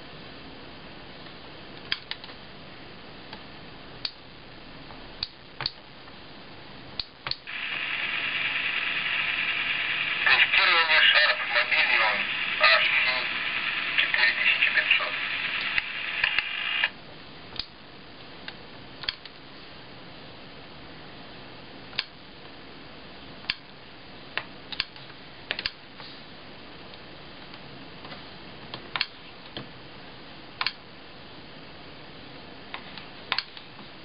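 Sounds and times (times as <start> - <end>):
faint steady hiss: 0.0 - 34.0
voice from small speaker: 10.1 - 16.2.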